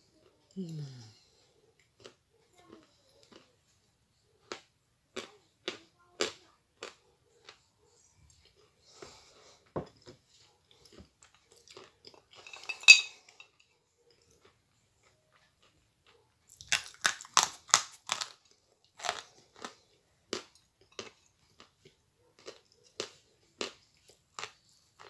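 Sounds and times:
chalk crunching when chewed: 14.1 - 25.0.

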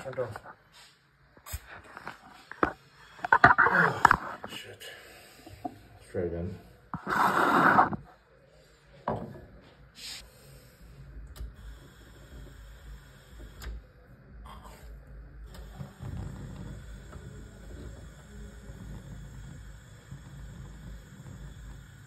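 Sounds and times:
gas burner rushing: 6.9 - 8.1, 15.4 - 22.0.

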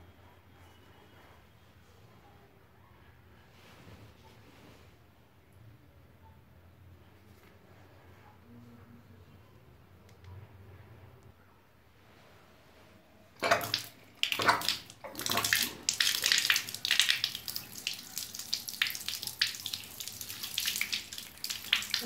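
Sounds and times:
tap water splashing on phone: 13.4 - 18.0.

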